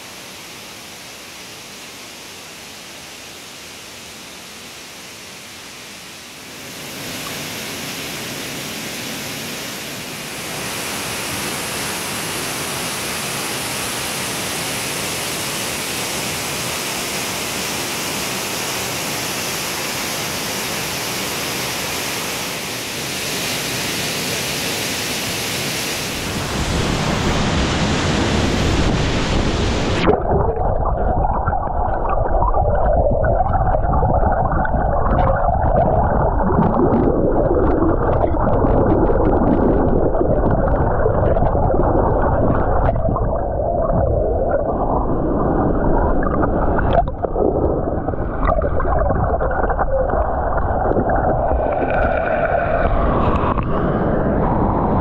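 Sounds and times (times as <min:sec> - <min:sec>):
waterfall rushing: 0:06.7 - 0:30.2, 0:39.2 - 0:55.0
underwater churning rumble: 0:26.2 - 0:55.0
bubbles crackling and popping: 0:30.0 - 0:55.0.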